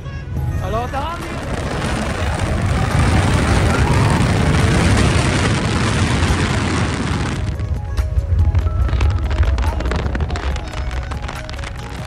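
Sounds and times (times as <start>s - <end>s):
music playing: 0.0s - 12.0s
car interior low rumble: 1.0s - 12.0s.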